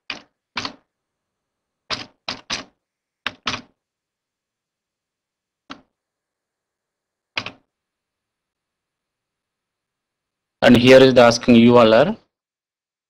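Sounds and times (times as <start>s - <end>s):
computer keyboard keystrokes: 7.4s - 7.6s.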